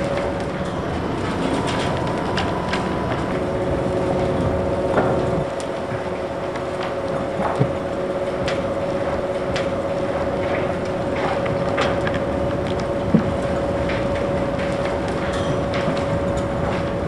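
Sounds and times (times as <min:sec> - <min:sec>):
excavator bucket wheel humming: 0:00.0 - 0:17.0.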